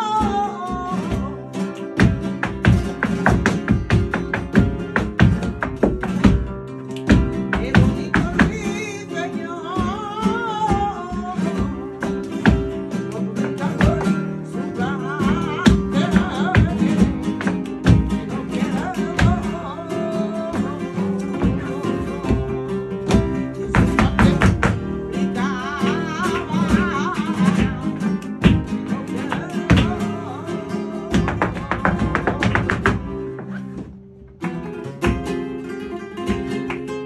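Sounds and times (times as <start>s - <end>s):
person singing: 0.0s - 5.5s, 7.1s - 33.3s
acoustic guitars strumming: 0.0s - 37.0s
heeled shoes striking floor: 2.0s - 8.6s, 21.3s - 25.0s, 27.4s - 30.2s, 31.1s - 35.4s.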